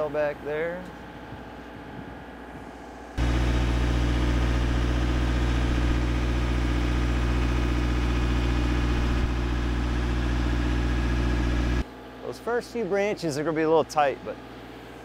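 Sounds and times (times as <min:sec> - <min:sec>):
boom lift engine running: 0:02.5 - 0:11.8.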